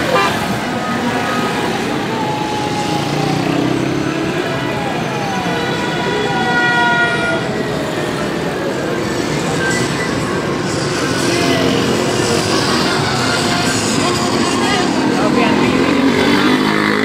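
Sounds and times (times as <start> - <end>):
vehicle horns: 0.0 - 1.9, 3.3 - 8.2
heavy road traffic: 0.0 - 17.0.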